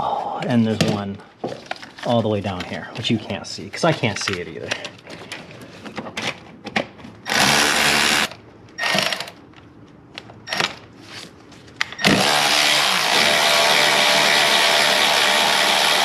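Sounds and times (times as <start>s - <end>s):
electric ratchet whirring: 7.3s - 9.4s, 12.0s - 16.0s.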